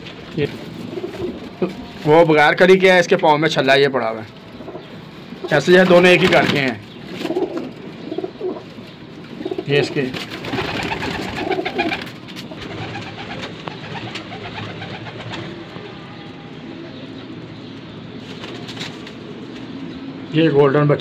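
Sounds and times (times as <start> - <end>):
pigeons cooing: 0.4 - 2.1, 4.5 - 20.3.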